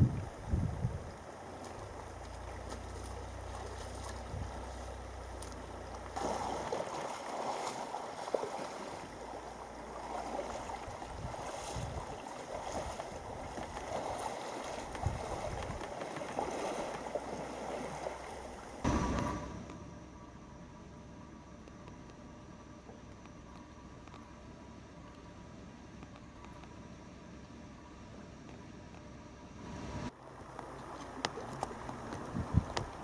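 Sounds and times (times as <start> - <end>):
wind rumbling on microphone: 0.0 - 6.8, 8.8 - 19.9, 29.6 - 33.0
river current rushing: 0.0 - 19.6
burst of noise: 18.8 - 20.2.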